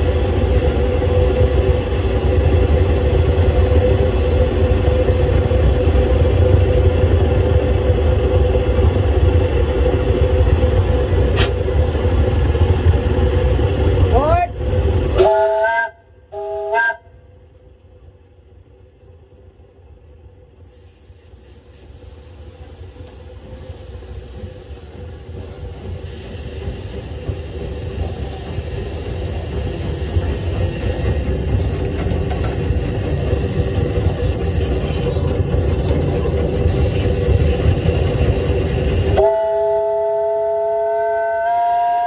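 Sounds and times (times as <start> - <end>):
steam locomotive whistle: 15.2 - 17.2, 39.0 - 42.0
locomotive rumble with hiss: 20.5 - 42.0.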